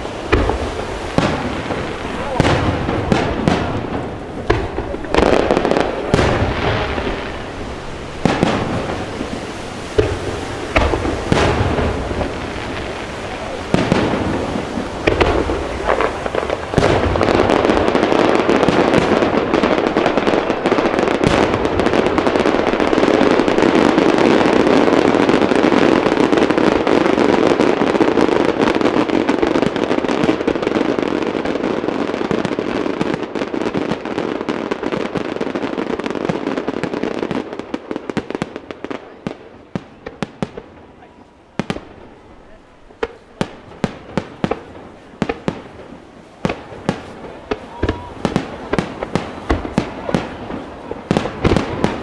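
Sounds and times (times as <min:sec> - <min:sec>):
firework bang: 0:00.0 - 0:28.3, 0:41.6 - 0:52.0
fireworks bursting and crackling: 0:00.0 - 0:52.0.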